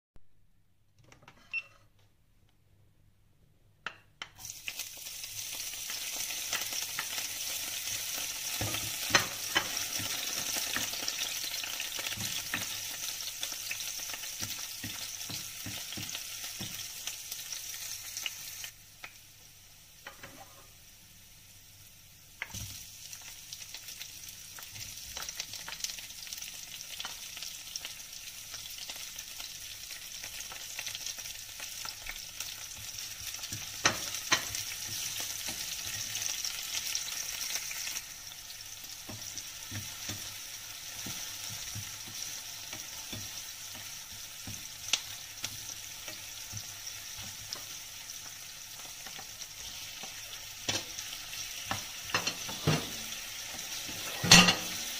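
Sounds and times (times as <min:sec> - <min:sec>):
garlic and onion sizzling in oil: 0:04.2 - 0:54.9
tongs scraping against pan: 0:51.7 - 0:54.8.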